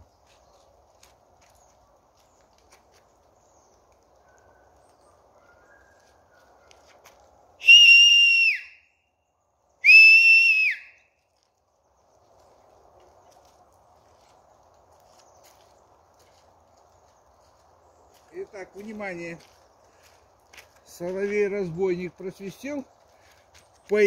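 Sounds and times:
man whistling loudly: 7.6 - 8.8, 9.8 - 11.0.

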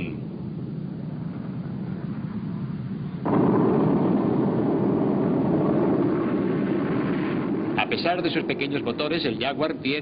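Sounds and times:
jet engines roaring: 0.0 - 10.0.

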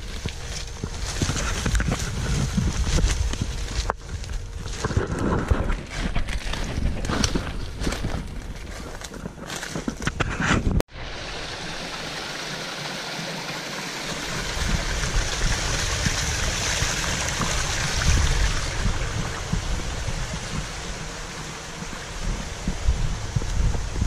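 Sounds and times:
wind buffeting microphone: 0.0 - 8.8, 14.2 - 24.0
stream trickling over stones: 11.2 - 24.0.

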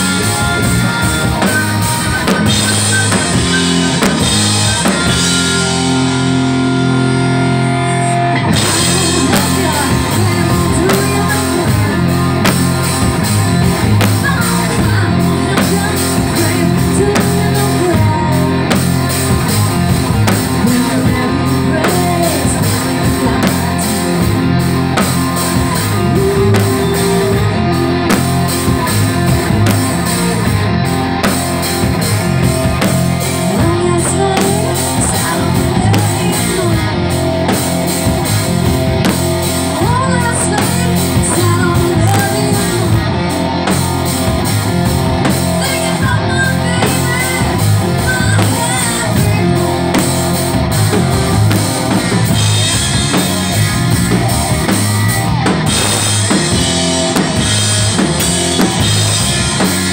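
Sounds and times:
bass guitar: 0.0 - 59.9
drum kit: 0.0 - 59.9
electric guitar: 0.0 - 59.9
woman singing: 8.0 - 13.0, 13.7 - 19.3, 20.4 - 24.3, 25.5 - 30.1, 33.4 - 37.2, 39.7 - 43.1, 45.4 - 50.1.

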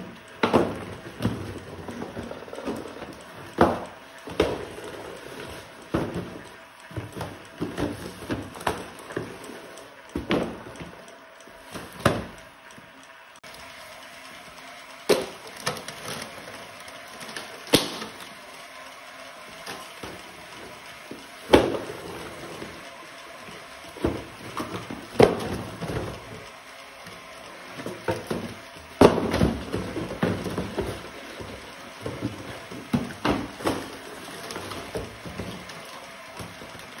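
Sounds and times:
cardboard boxes knocking on conveyor: 0.0 - 9.3, 10.1 - 10.9, 11.7 - 12.4, 15.1 - 16.2, 21.1 - 22.4, 23.9 - 26.5, 27.8 - 35.7.

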